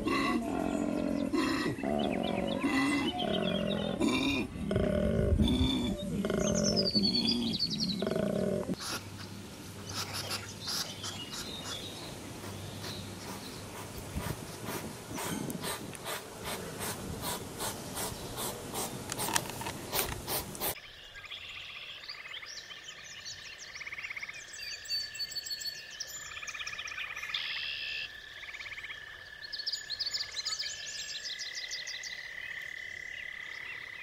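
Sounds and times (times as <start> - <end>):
rustling in grass: 8.8 - 20.8
hedgehog sniffing: 9.9 - 20.8.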